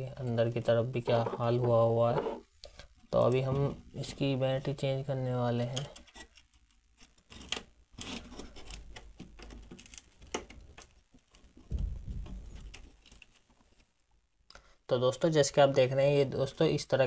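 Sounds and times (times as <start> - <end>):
rustling and scraping of wires: 0.2 - 4.6, 5.4 - 14.0
low thumps: 11.7 - 12.8.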